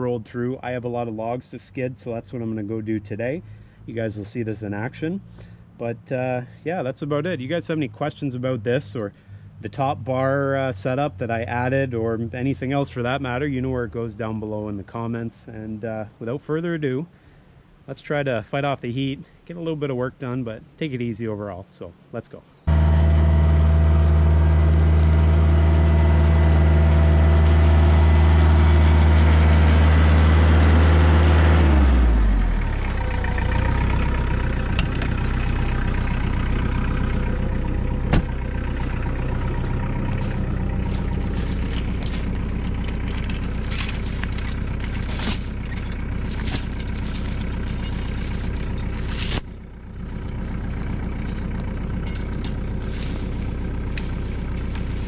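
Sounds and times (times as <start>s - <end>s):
tractor diesel engine running: 22.7s - 55.0s.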